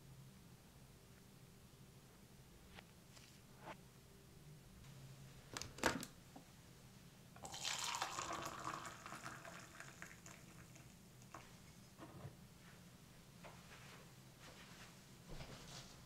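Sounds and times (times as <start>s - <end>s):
water pouring into a mug: 7.4s - 11.5s.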